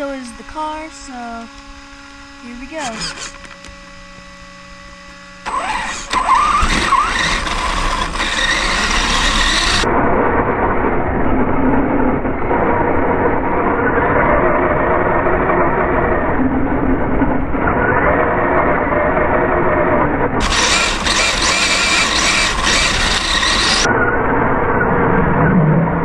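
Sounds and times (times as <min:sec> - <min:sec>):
rc car motor whine: 0:00.0 - 0:09.9, 0:17.6 - 0:23.9.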